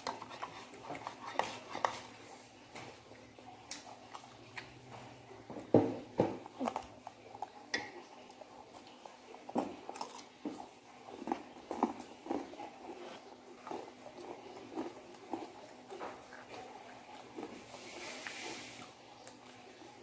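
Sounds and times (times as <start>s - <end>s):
chewing crunchy food: 0.0s - 5.7s, 6.3s - 20.0s.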